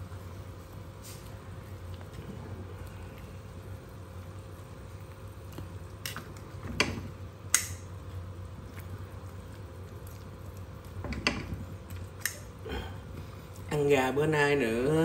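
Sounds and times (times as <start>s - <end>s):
steady low hum: 0.0s - 15.0s
chicken squishing in broth: 8.1s - 11.0s.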